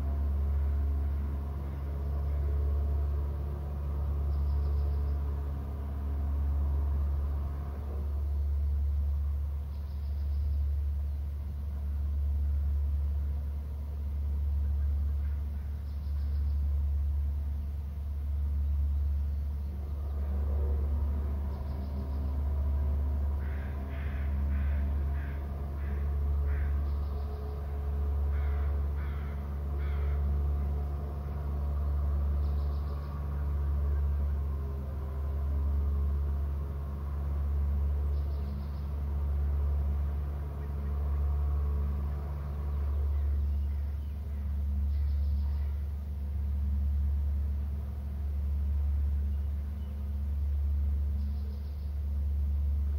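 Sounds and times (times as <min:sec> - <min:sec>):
low pulsing hum: 0:00.0 - 0:52.9
bird calling: 0:14.5 - 0:16.8, 0:18.6 - 0:35.3, 0:38.0 - 0:46.0.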